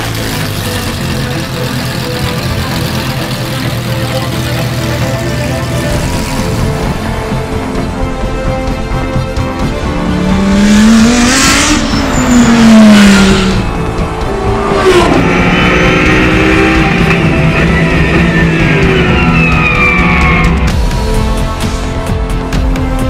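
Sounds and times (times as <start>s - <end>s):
race car engine passing: 9.8s - 20.6s.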